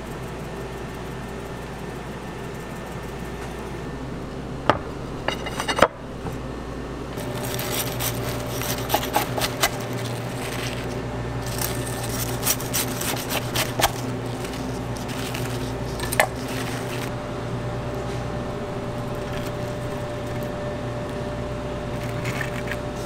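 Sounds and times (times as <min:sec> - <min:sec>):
knife crunching through crispy crust: 0:07.2 - 0:17.1.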